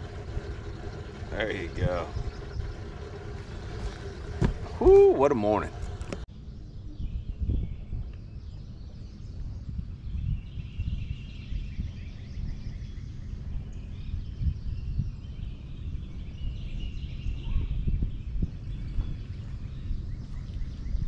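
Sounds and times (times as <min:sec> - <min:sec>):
birds chirping and trilling: 0:00.0 - 0:21.0
steady low rumble: 0:00.0 - 0:21.0.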